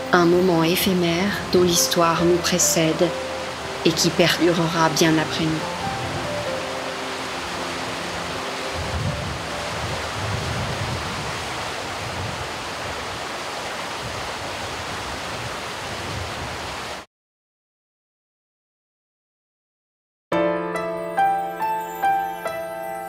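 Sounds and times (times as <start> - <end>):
river water rushing over stones: 0.0 - 17.0.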